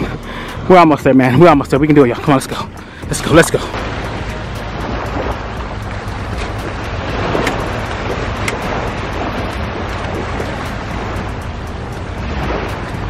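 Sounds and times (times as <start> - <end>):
wind buffeting microphone: 1.4 - 13.0
surf washing on beach: 2.2 - 13.0.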